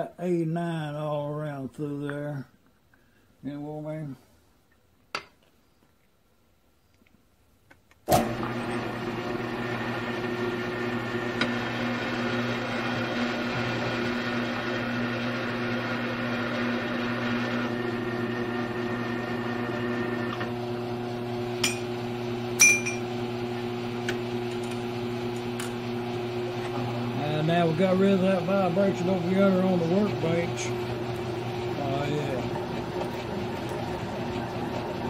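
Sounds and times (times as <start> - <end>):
milling machine cutting metal: 24.0 - 35.0.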